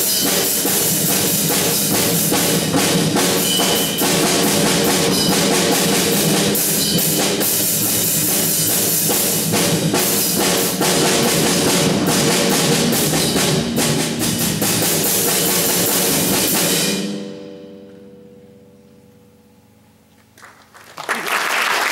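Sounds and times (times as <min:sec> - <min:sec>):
concert bass drum: 0:00.0 - 0:16.9
percussion ensemble drumming: 0:00.0 - 0:16.9
timpani: 0:00.0 - 0:18.3.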